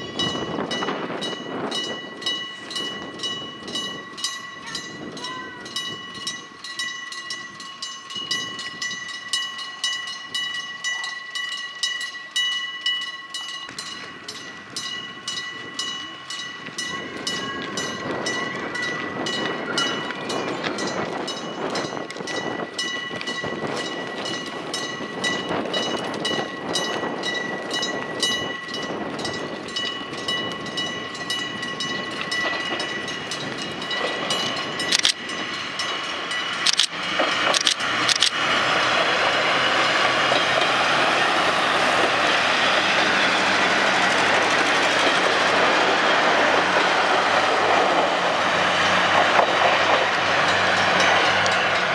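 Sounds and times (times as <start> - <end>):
level-crossing bell dinging: 0.0 - 36.9, 39.2 - 51.9
diesel railcar engine and wheels: 0.0 - 51.9.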